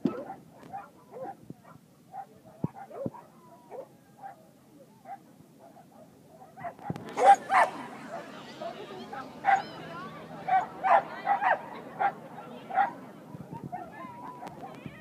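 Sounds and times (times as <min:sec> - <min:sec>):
dogs barking and yipping: 0:00.0 - 0:04.4, 0:05.1 - 0:08.4, 0:09.1 - 0:13.0.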